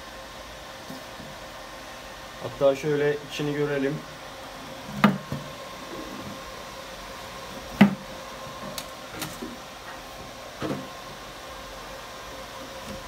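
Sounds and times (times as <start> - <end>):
cooling fans humming: 0.0 - 13.0
hollow knocks on cooler box: 5.0 - 5.5, 7.8 - 8.0.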